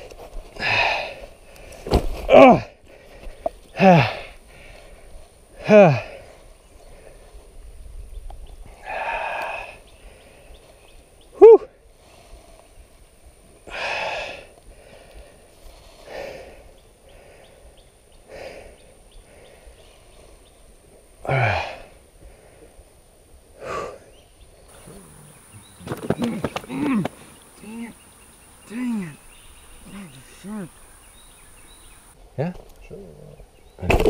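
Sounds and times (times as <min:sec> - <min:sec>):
man breathing heavily: 0:00.5 - 0:01.9, 0:02.5 - 0:07.6, 0:08.6 - 0:10.8, 0:13.6 - 0:20.6, 0:21.2 - 0:32.2.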